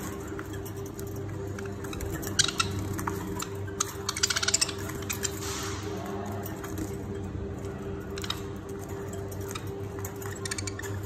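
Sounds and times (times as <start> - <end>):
budgerigars chirping: 1.8 - 5.4, 10.2 - 11.0.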